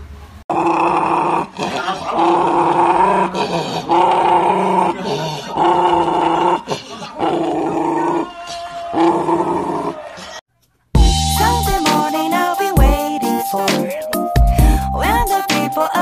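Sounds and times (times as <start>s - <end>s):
dog growling: 0.5s - 10.4s.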